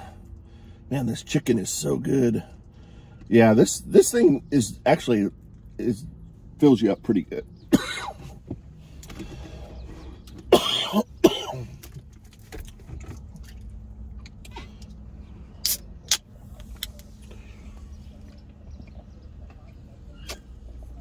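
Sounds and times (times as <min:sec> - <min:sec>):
vehicle interior hum: 0:00.0 - 0:21.0
person coughing: 0:07.7 - 0:08.3, 0:10.5 - 0:11.8
soda can cracked open: 0:15.6 - 0:16.2.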